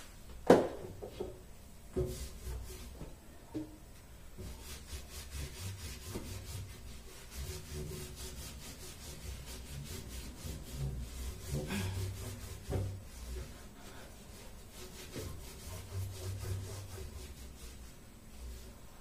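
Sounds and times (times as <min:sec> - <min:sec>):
cloth scrubbing hard surface: 0:04.5 - 0:19.0.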